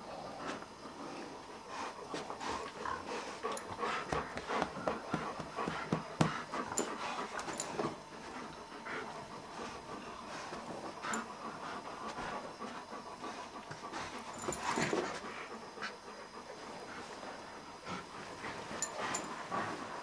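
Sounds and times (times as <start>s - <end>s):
dogs panting and scuffling: 0.2s - 20.0s.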